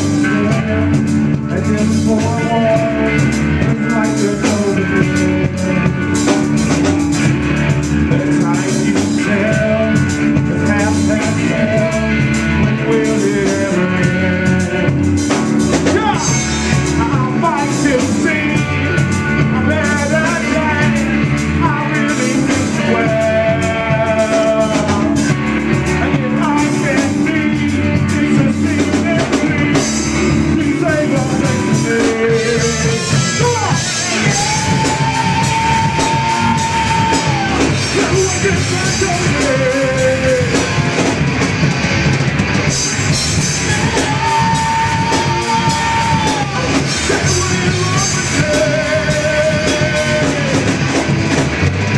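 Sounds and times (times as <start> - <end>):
man singing: 0.0 - 41.3, 42.7 - 51.2
live rock band playing: 0.0 - 51.9.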